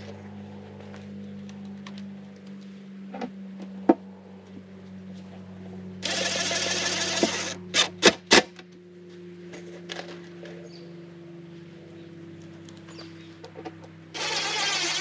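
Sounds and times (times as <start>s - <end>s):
steady low hum: 0.0s - 15.0s
cordless drill running: 6.0s - 7.9s, 14.1s - 15.0s.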